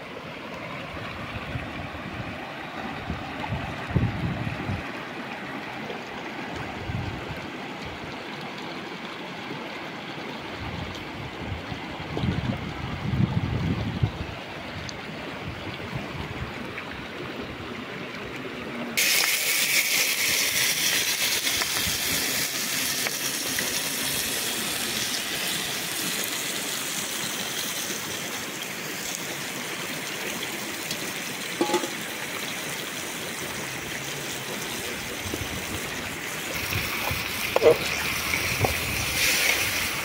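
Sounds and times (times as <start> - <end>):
river water rushing: 0.0 - 13.0, 22.6 - 40.0.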